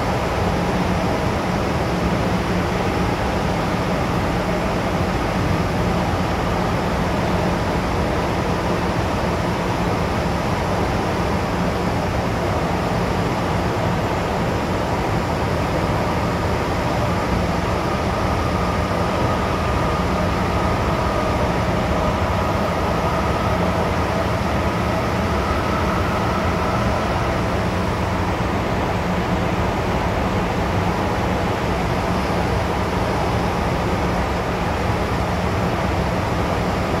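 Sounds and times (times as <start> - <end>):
train rumble and rail noise: 0.0 - 37.0
faint whine: 16.0 - 28.5.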